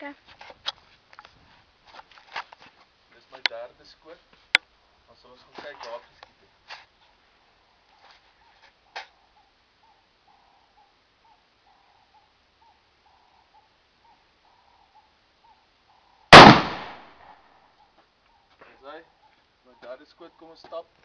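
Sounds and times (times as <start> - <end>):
rifle shot: 16.3 - 17.4.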